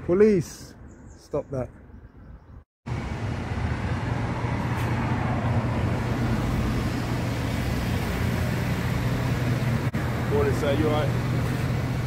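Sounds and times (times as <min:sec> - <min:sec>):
van engine running at low revs: 0:05.4 - 0:12.0.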